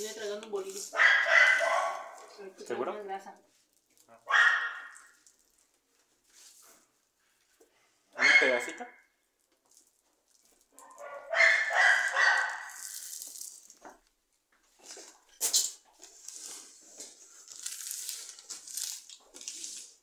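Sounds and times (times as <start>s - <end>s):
plastic sheet crinkling: 9.4s - 14.0s, 14.8s - 20.0s.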